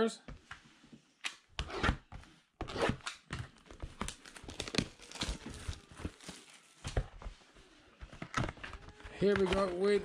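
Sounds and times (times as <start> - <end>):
plastic wrap crinkling and tearing: 3.1 - 7.0.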